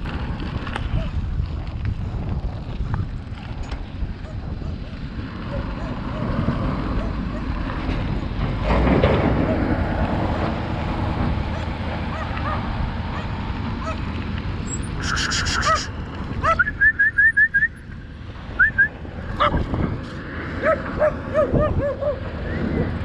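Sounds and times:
wind on microphone: 0.0s - 23.0s
dogs deep barks: 11.5s - 14.1s, 20.6s - 22.3s
dogs high yips: 15.0s - 16.7s, 20.6s - 22.2s.

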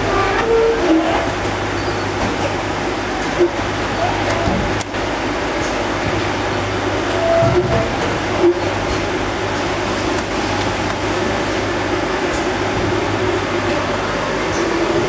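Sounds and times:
machinery humming and rushing: 3.3s - 15.0s.

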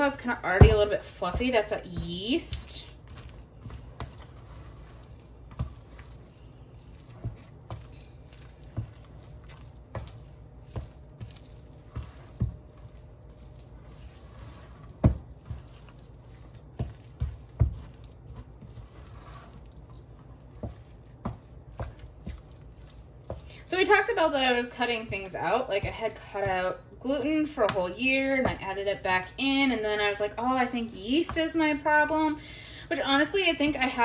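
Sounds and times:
spoon squishing sticky dough: 0.0s - 29.1s.

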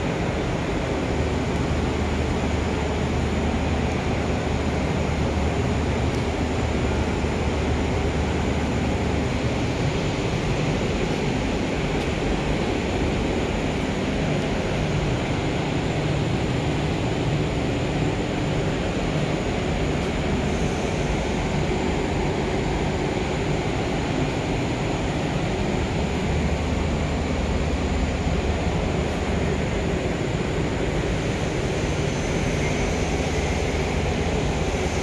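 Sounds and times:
steady rushing noise: 0.0s - 35.0s.

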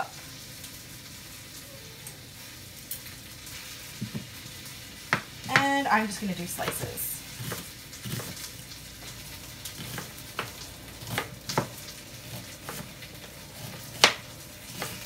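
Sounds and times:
meat sizzling: 0.0s - 15.0s
knife chopping on wooden board: 6.6s - 8.4s, 9.8s - 13.0s, 13.6s - 15.0s.

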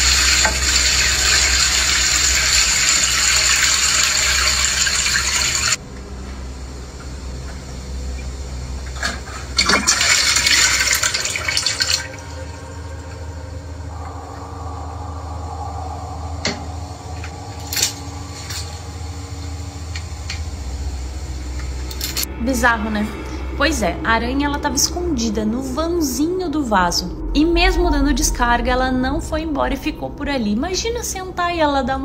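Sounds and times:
cistern refilling hiss: 0.0s - 5.8s, 7.6s - 22.3s
toilet flushing: 0.0s - 5.8s, 8.8s - 13.9s
low hum: 0.0s - 32.0s.

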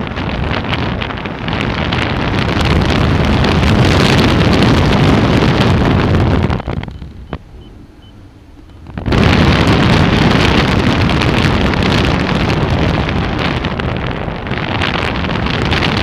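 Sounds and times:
airflow buffeting microphone: 0.0s - 16.0s.

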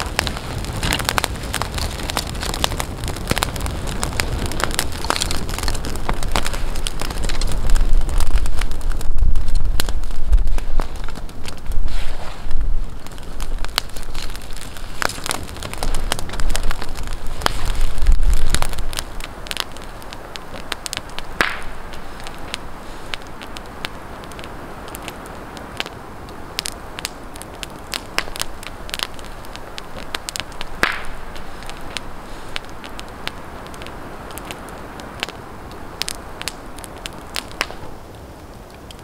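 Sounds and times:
campfire crackling: 0.0s - 39.0s
sharp pops of burning wood: 0.0s - 39.0s.

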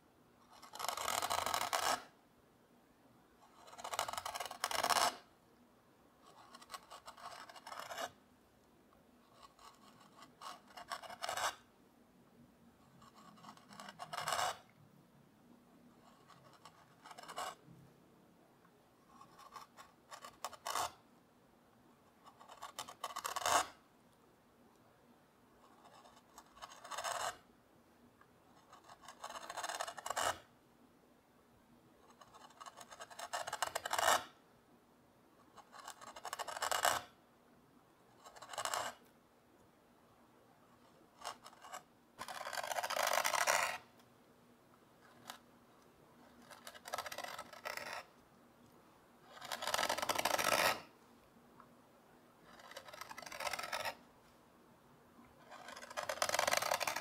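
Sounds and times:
carving tool scraping wood: 0.5s - 2.1s, 3.4s - 5.3s, 6.3s - 8.2s, 9.3s - 11.7s, 13.0s - 14.7s, 16.1s - 17.6s, 19.1s - 21.0s, 22.3s - 23.8s, 25.7s - 27.4s, 28.7s - 30.5s, 32.1s - 34.4s, 35.6s - 37.1s, 38.2s - 39.0s, 40.8s - 43.9s, 46.2s - 48.2s, 49.3s - 50.9s, 52.5s - 54.0s, 55.4s - 57.0s.

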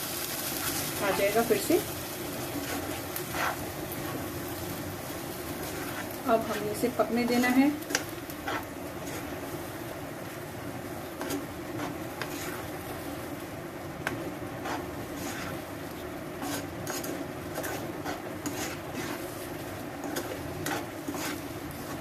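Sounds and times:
metal spatula scraping pan: 2.6s - 4.2s, 5.6s - 9.4s, 11.2s - 12.8s, 14.0s - 15.6s, 16.4s - 22.0s.

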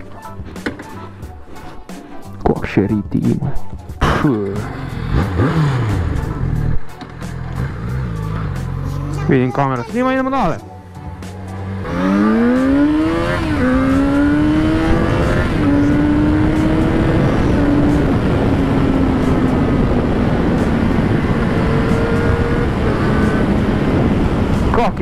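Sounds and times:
motorcycle engine accelerating: 4.0s - 9.2s, 10.9s - 25.0s
wind noise: 12.0s - 25.0s.

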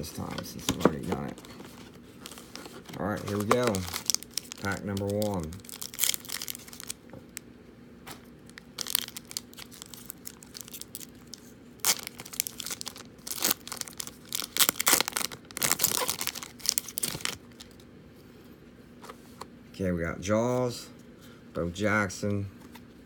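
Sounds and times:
foil wrapper tearing and crinkling: 2.2s - 7.0s, 8.5s - 17.8s.

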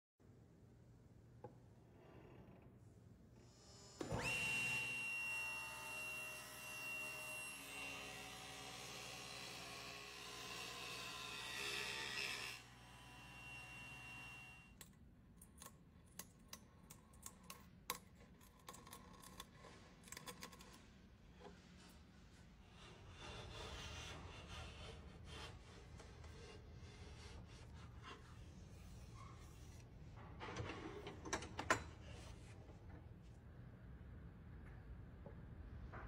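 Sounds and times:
table saw motor whine: 3.9s - 14.7s
saw cutting wood: 4.1s - 14.6s.

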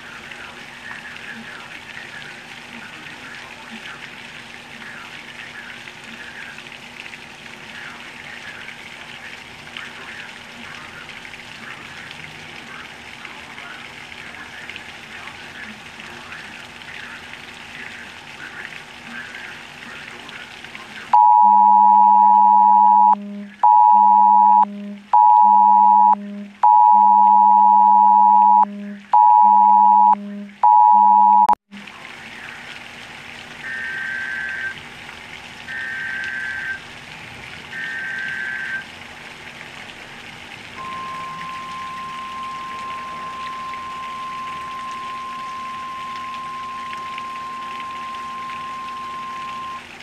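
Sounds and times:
heavy rain: 0.0s - 31.1s, 31.8s - 50.0s
phone emergency alert tone: 21.1s - 31.6s, 33.6s - 34.8s, 35.7s - 36.8s, 37.7s - 38.9s, 40.8s - 49.9s
faint high beeps: 21.2s - 31.6s, 35.7s - 36.8s, 37.8s - 38.8s, 40.8s - 49.8s.

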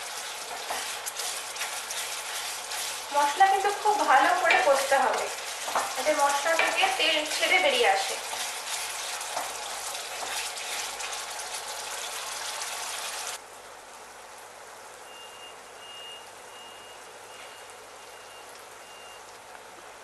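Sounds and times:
wooden spatula scraping pan: 0.0s - 11.3s
masala sizzling in oil: 0.0s - 20.0s
faint high beeping: 15.0s - 19.3s.

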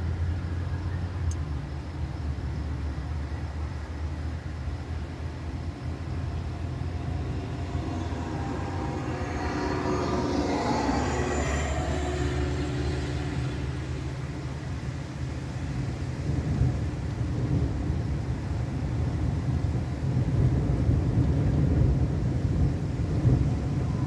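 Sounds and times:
steady low rumble: 2.4s - 24.0s
vehicle passing by: 4.0s - 17.0s.

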